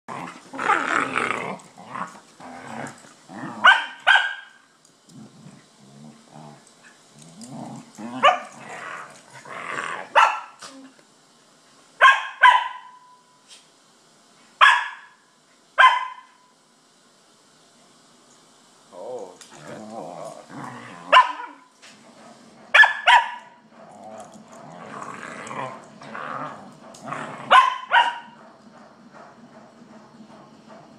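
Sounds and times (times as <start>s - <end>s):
dogs growling: 0.1s - 3.7s, 5.1s - 10.9s, 18.9s - 22.7s, 23.6s - 30.9s
dogs barking: 3.6s - 4.6s, 8.2s - 8.6s, 10.1s - 10.6s, 12.0s - 13.0s, 14.6s - 15.1s, 21.1s - 21.6s, 22.7s - 23.6s, 27.4s - 28.5s.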